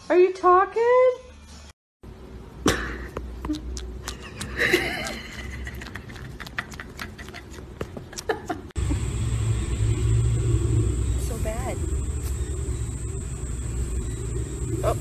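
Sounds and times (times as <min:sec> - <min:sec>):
steady low hum: 0:02.0 - 0:15.0
cat suckling and chewing: 0:03.2 - 0:08.7.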